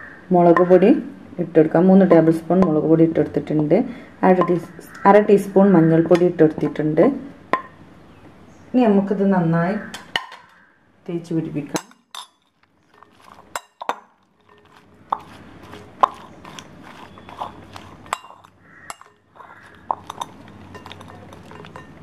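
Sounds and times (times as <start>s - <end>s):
dried fish clinking in ceramic bowl: 11.7s - 22.0s.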